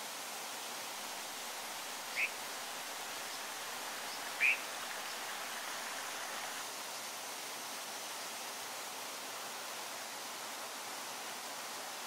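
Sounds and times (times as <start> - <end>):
stream water rushing: 0.0 - 12.0
sharp bird calls: 2.1 - 2.4, 3.2 - 5.3.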